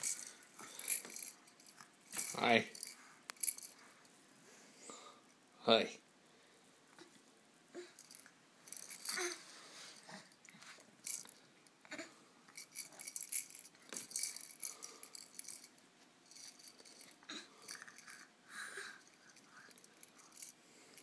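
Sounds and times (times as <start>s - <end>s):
plastic toy rattling: 0.0s - 3.8s, 8.0s - 9.4s, 11.0s - 11.3s, 12.6s - 15.7s.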